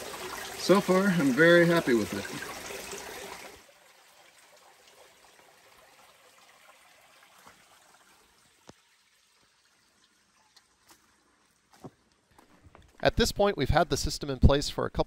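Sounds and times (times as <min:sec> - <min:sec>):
faint trickle of spring water: 0:00.0 - 0:12.3.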